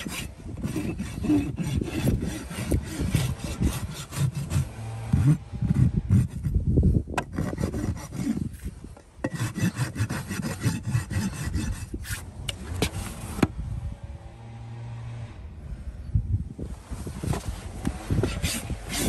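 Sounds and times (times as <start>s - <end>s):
hoof rasp scraping hoof: 0.0s - 6.6s, 7.2s - 13.5s, 16.9s - 19.0s.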